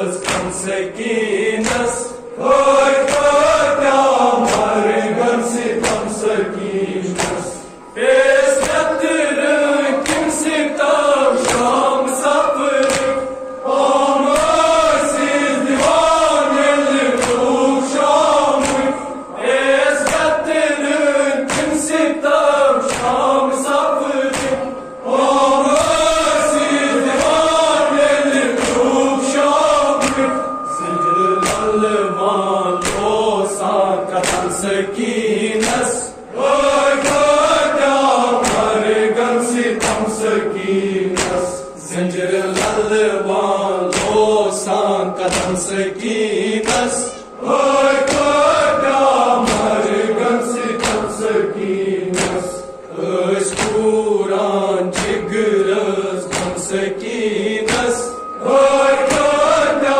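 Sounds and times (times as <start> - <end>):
men chanting a lament: 0.0 - 59.9.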